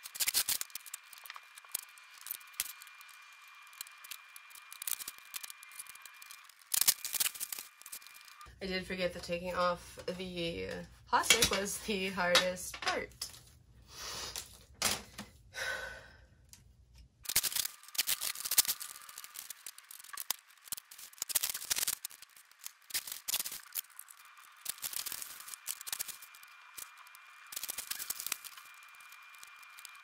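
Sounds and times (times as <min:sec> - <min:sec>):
plastic film peeling: 0:00.0 - 0:08.5, 0:17.2 - 0:30.0.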